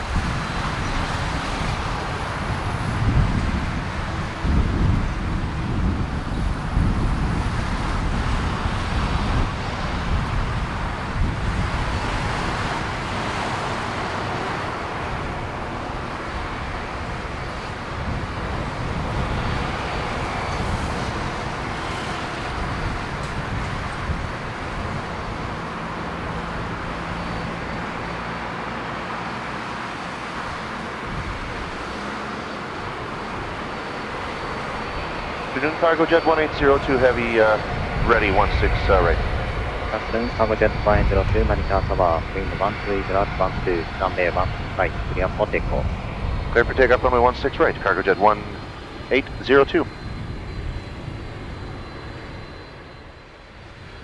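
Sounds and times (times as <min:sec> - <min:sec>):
jet engines taxiing: 0:00.0 - 0:54.0
low rumble: 0:35.0 - 0:52.7.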